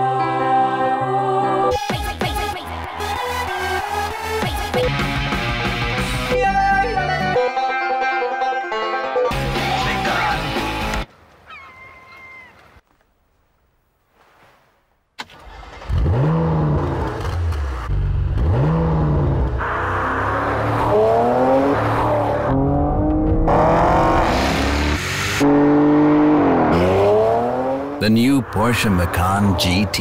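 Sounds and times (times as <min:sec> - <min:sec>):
car engine starting and revving: 0:15.2 - 0:30.0.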